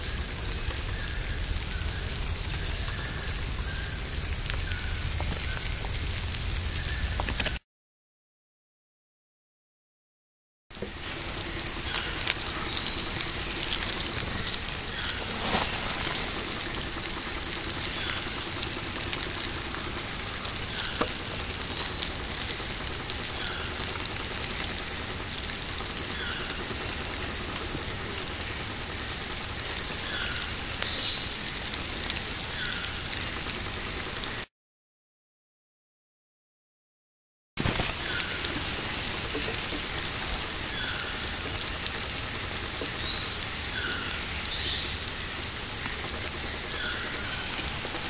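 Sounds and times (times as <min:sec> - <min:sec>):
high-pitched insect drone: 0:00.0 - 0:07.4, 0:10.9 - 0:27.4.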